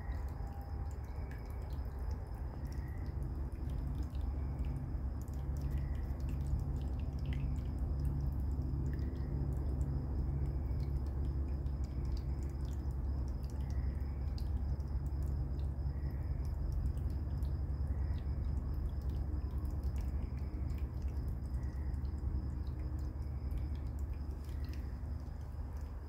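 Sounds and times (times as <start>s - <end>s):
insects trilling: 0.0s - 26.0s
steady low hum: 0.0s - 26.0s.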